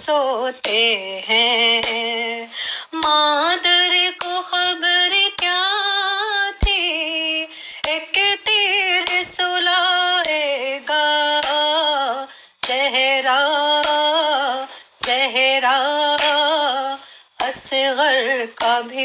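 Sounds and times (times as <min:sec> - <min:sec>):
woman singing unaccompanied: 0:00.0 - 0:19.0.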